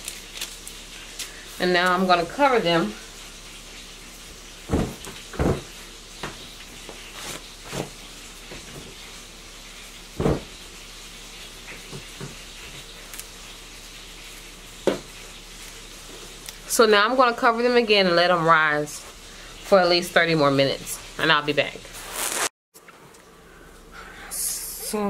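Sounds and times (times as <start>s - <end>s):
dull kitchen knocks: 4.7s - 6.4s, 10.2s - 10.6s, 14.8s - 15.1s.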